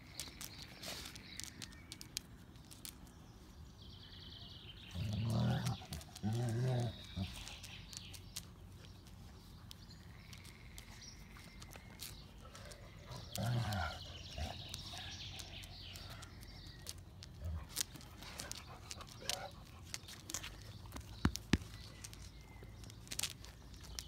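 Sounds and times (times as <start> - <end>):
dog growling: 4.9 - 7.6, 13.0 - 15.5.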